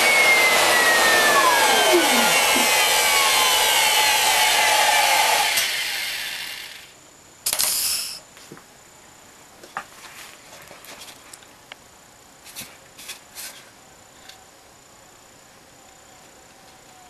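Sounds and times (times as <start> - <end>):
router spindle whine winding down: 0.0 - 6.9
short loud hissing burst: 7.5 - 8.2.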